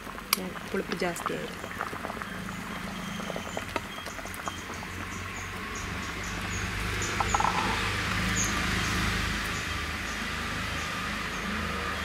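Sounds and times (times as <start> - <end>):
pot simmering hiss: 0.0 - 12.0
small bird chirping: 1.6 - 9.6.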